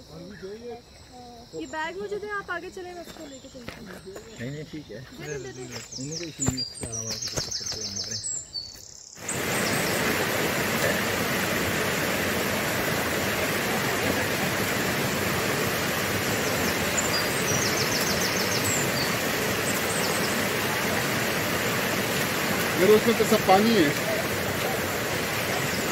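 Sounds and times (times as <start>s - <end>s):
bird chirps: 2.8s - 10.3s, 15.4s - 22.0s
stream rushing over rocks: 9.2s - 25.9s.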